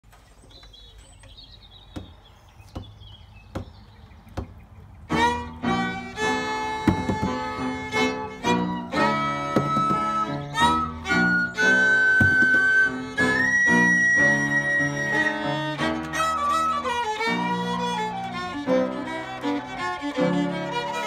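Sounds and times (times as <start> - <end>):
count-in taps: 2.0 - 5.7, 6.8 - 8.0, 9.5 - 10.4
fiddle: 5.0 - 21.0
piano: 5.1 - 21.0
whistle: 9.4 - 16.9.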